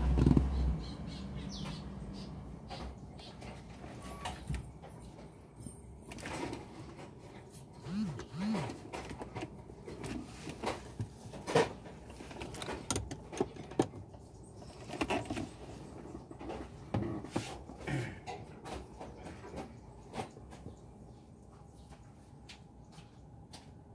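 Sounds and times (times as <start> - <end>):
metal clicks and knocks: 11.4 - 14.1.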